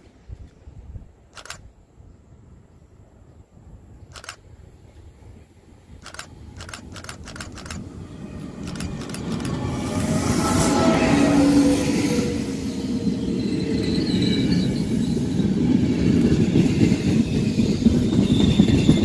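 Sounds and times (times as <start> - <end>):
train rumbling on rails: 0.0 - 19.0
sharp clicks: 1.3 - 1.7, 4.1 - 4.4, 6.0 - 7.8, 8.6 - 9.6.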